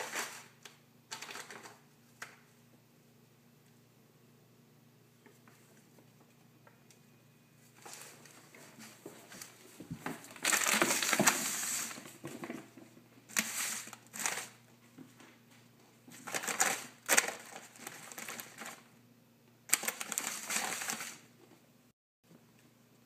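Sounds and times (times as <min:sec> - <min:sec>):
plastic bag rustling and crinkling: 0:00.0 - 0:01.8, 0:07.7 - 0:14.6, 0:16.1 - 0:18.9, 0:19.7 - 0:21.3.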